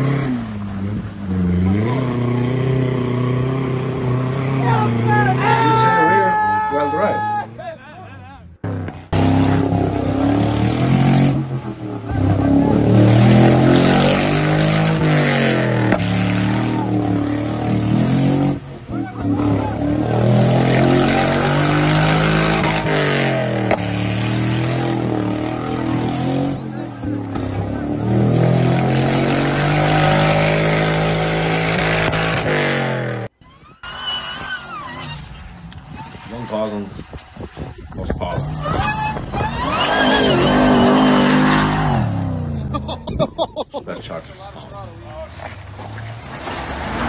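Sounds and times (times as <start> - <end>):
suv engine revving: 0.0 - 5.7, 8.5 - 43.2
wheels churning through mud: 9.0 - 42.9, 43.9 - 47.0.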